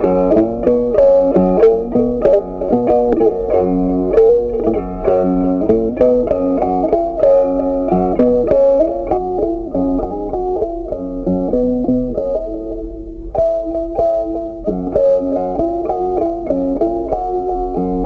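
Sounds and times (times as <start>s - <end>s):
instrumental music: 0.0s - 18.0s.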